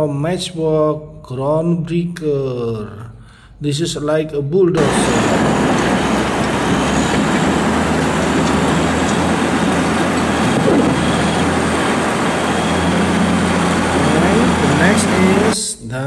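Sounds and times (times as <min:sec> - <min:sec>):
blade pushing gravel: 0:04.8 - 0:15.5
bulldozer diesel engine running: 0:04.8 - 0:15.6.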